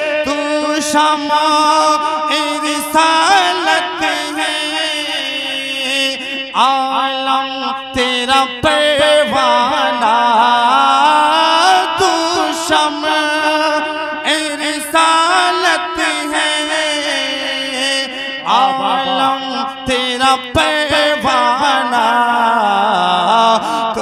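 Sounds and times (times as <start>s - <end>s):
man singing devotional song: 0.0s - 24.0s.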